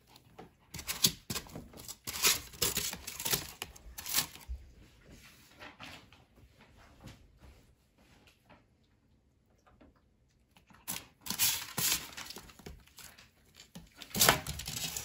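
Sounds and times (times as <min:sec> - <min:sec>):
dog scratching at styrofoam and cardboard: 0:00.7 - 0:04.4, 0:14.0 - 0:15.0.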